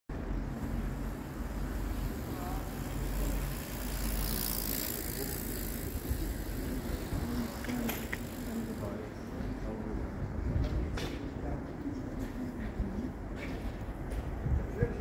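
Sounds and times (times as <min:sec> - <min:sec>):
low street rumble: 0:00.1 - 0:15.0
bicycle passing close: 0:00.2 - 0:09.9
faint voices: 0:01.9 - 0:13.6.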